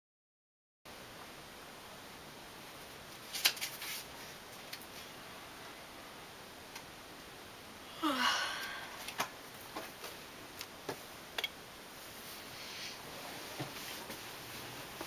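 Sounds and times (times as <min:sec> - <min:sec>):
woman yawning: 0:07.9 - 0:09.0.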